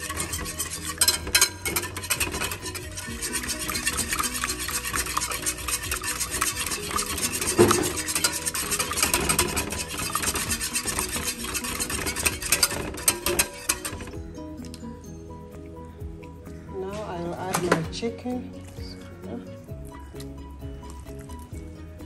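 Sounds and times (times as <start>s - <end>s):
whisk clinking against glass: 0.0s - 14.2s.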